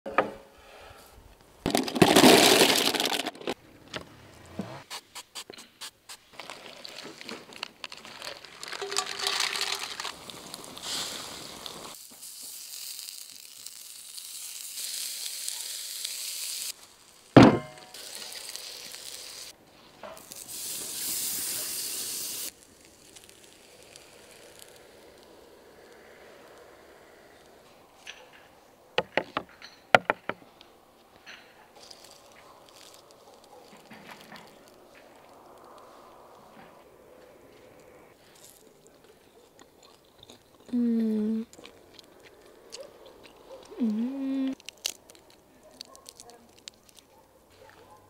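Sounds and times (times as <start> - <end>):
seafood sizzling on a griddle: 10.0 - 19.6, 20.2 - 26.2
sharp knock: 17.4 - 17.8.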